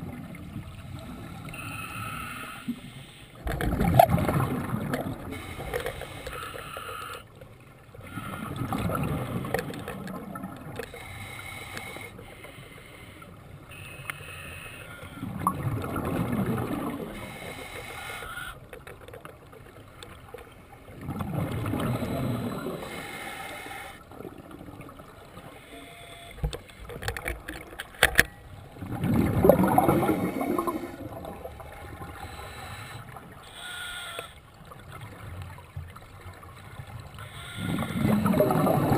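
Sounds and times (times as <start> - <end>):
diver exhaling bubbles: 21.0 - 22.9, 28.8 - 32.1, 37.6 - 38.9
sharp clicks and knocks: 26.4 - 28.4.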